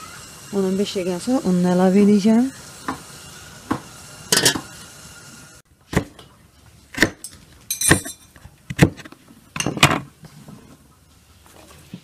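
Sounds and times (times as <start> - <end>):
knife chopping carrot on wooden board: 6.9 - 7.2.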